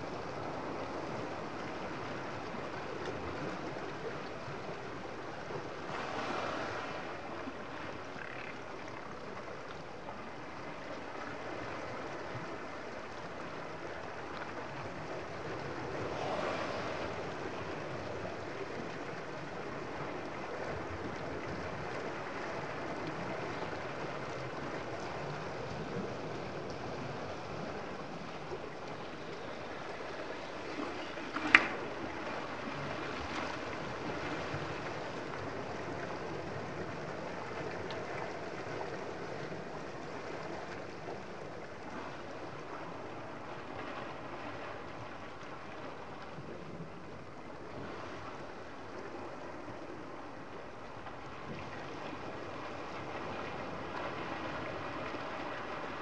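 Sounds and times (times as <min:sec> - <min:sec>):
choppy sea water: 0:00.0 - 0:56.0
wind on microphone: 0:15.7 - 0:19.1.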